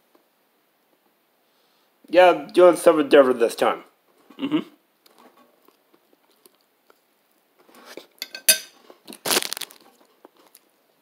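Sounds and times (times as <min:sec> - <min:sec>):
plastic bottle crinkling: 0:09.0 - 0:10.7.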